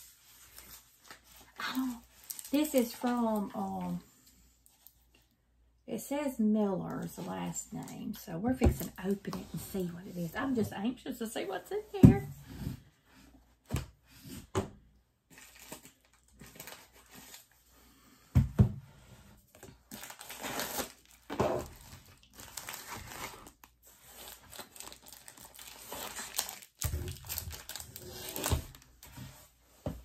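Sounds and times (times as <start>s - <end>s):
packaging crinkling and tearing: 0.4s - 3.6s, 15.3s - 17.6s, 19.5s - 29.1s.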